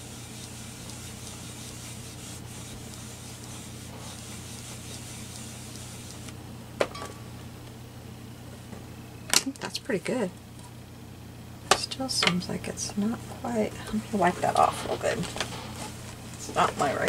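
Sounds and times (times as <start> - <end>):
ink pad rubbing on stamp: 0.0 - 6.3.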